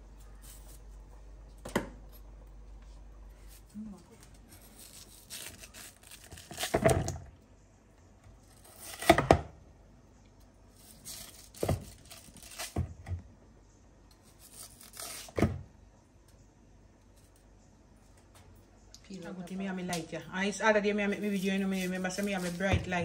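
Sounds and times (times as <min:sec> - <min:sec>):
knife scraping through yam: 0:04.5 - 0:06.9, 0:08.5 - 0:09.2, 0:10.8 - 0:12.8, 0:14.2 - 0:15.4, 0:21.0 - 0:22.7.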